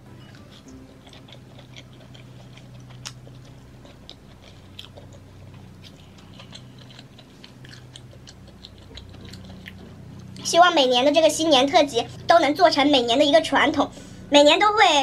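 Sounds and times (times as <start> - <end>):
steady low hum: 0.0 - 15.0
person chewing food: 0.2 - 10.4.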